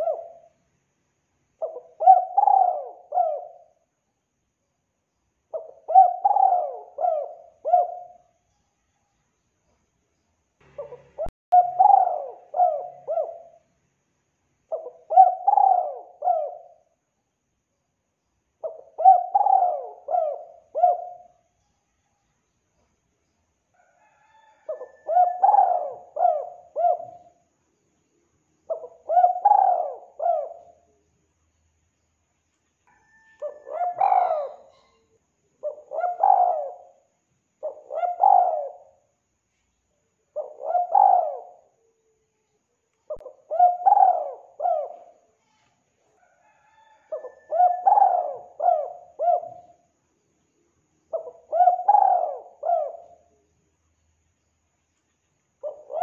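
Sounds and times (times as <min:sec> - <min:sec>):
dove cooing: 0:00.0 - 0:00.5, 0:01.6 - 0:03.8, 0:05.5 - 0:08.3, 0:10.7 - 0:13.6, 0:14.7 - 0:16.9, 0:18.6 - 0:21.4, 0:23.8 - 0:27.4, 0:28.7 - 0:31.0, 0:32.9 - 0:39.0, 0:40.3 - 0:42.0, 0:43.1 - 0:45.3, 0:46.2 - 0:49.9, 0:51.1 - 0:53.4, 0:55.6 - 0:56.0.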